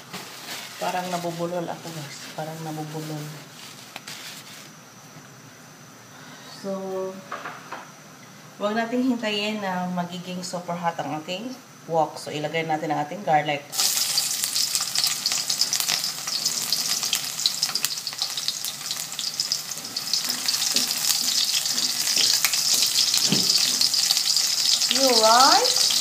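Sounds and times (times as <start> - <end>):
garlic sizzling in oil: 0.0 - 4.5, 13.7 - 26.0
spatula scraping a wok: 0.0 - 4.7, 15.0 - 25.0.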